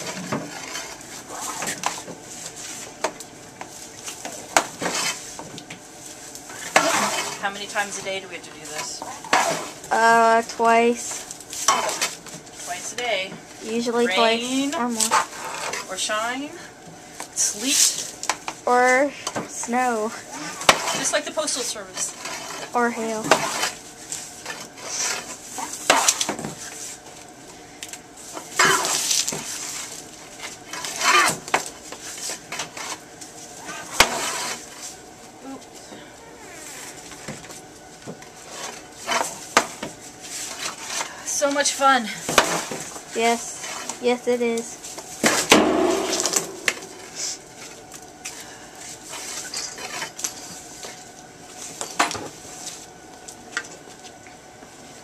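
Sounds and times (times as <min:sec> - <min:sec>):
garden hose scraping on reel: 0:00.0 - 0:03.0, 0:04.8 - 0:05.5, 0:06.5 - 0:09.9, 0:10.6 - 0:16.3, 0:20.5 - 0:27.0, 0:28.3 - 0:31.4, 0:33.6 - 0:35.0
rubber hose rustling and dragging: 0:00.0 - 0:03.0, 0:28.2 - 0:35.0.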